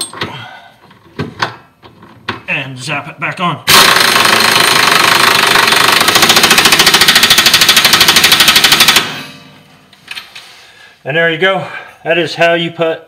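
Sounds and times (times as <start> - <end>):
air impact wrench hammering: 3.7 - 9.6.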